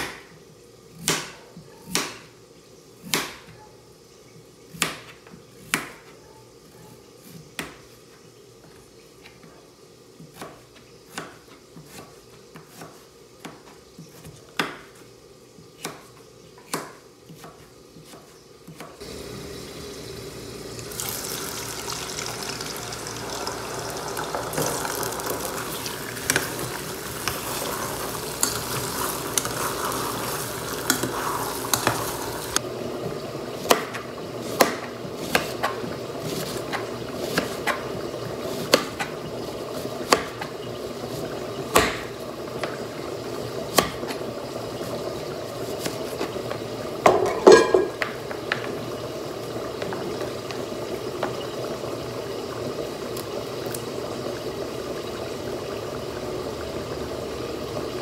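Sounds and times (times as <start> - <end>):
knife chopping on cutting board: 3.1 - 3.5, 33.7 - 37.8, 41.7 - 42.1
potatoes sizzling in hot fat: 19.0 - 58.0.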